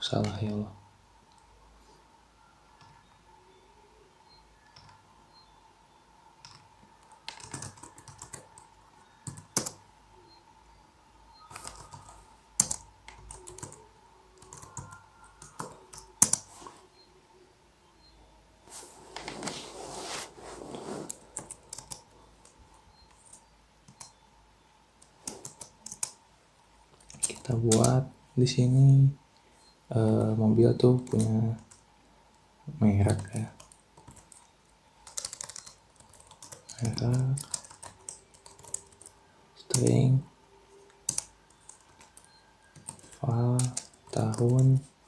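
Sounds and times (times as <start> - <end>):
typing on computer keyboard: 6.4 - 9.8, 11.5 - 13.8, 14.4 - 16.5, 21.3 - 24.2, 25.0 - 26.2, 27.0 - 28.0, 33.1 - 39.1, 40.9 - 44.9.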